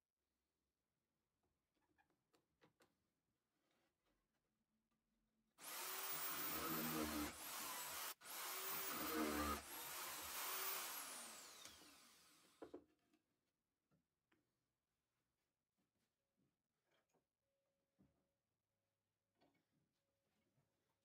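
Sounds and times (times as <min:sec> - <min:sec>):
electric drill boring through wood: 0:05.6 - 0:12.7.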